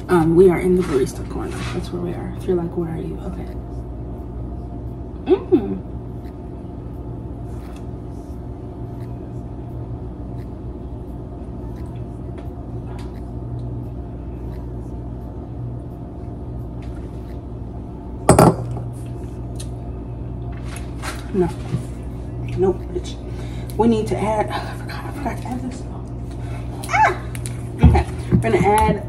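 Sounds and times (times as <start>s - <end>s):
low hum with fixed tones: 0.0s - 29.0s
glass mug clinking on counter: 18.3s - 18.8s.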